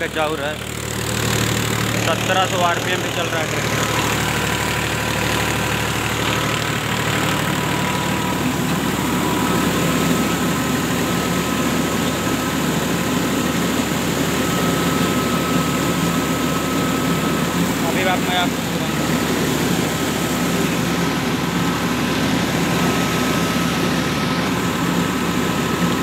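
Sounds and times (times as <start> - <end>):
rice mill machinery running: 0.0 - 26.0
thin steady whine: 0.0 - 26.0
tractor diesel engine running: 0.0 - 26.0.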